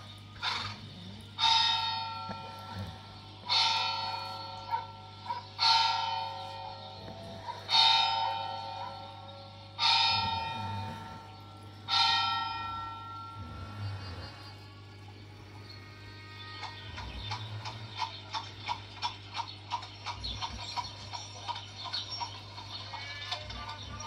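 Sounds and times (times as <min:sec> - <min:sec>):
steady low hum: 0:00.0 - 0:24.0
bell tolling: 0:01.4 - 0:14.2.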